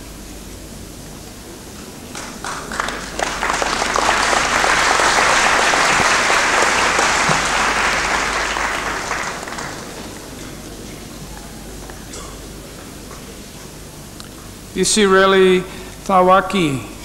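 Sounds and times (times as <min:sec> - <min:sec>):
audience applauding: 0:02.1 - 0:12.1.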